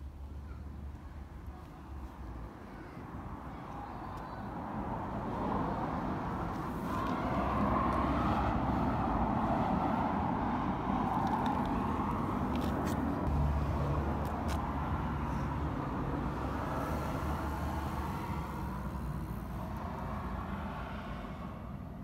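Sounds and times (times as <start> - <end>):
vehicle rushing noise: 5.4 - 15.7.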